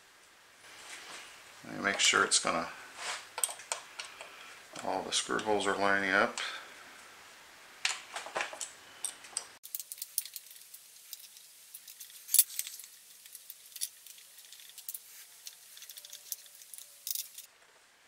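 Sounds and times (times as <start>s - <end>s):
metal clicks and rattles: 7.9s - 17.5s.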